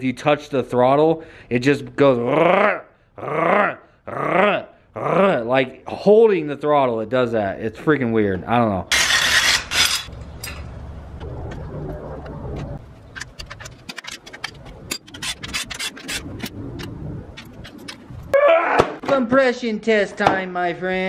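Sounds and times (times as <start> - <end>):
hand tools scraping metal: 8.9 - 10.7, 13.2 - 16.5.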